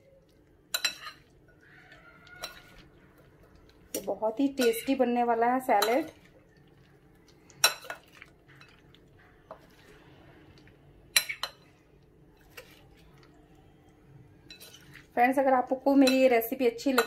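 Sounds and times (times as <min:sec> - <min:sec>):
soft scraping and stirring: 0:00.0 - 0:17.0
metal spoons clinking on glass bowl: 0:00.7 - 0:01.3, 0:02.4 - 0:02.8, 0:04.5 - 0:05.0, 0:05.8 - 0:06.2, 0:16.0 - 0:17.0.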